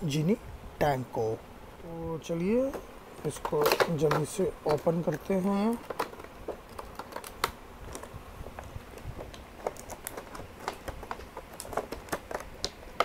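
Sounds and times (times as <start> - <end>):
stiff plastic packaging crackling: 3.3 - 13.0.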